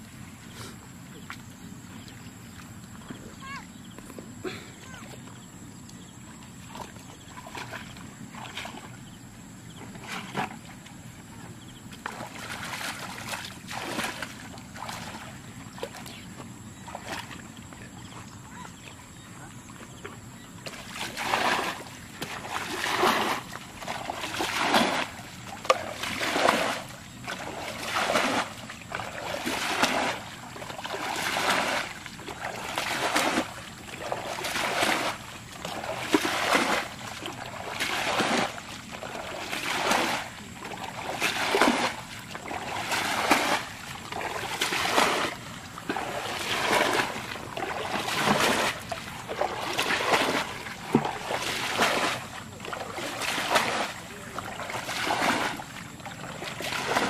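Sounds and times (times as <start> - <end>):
water splashing: 6.2 - 9.2, 9.8 - 57.0
bucket scooping water: 6.2 - 11.0, 11.7 - 57.0.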